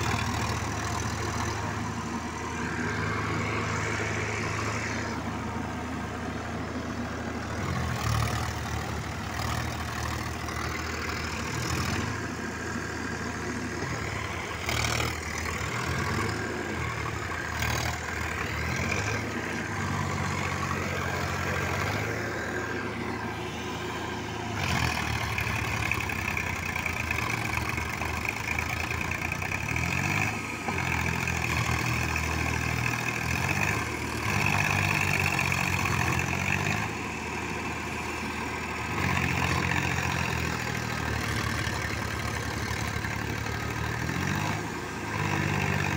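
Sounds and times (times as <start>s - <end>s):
diesel tractor engines labouring: 0.0s - 45.9s.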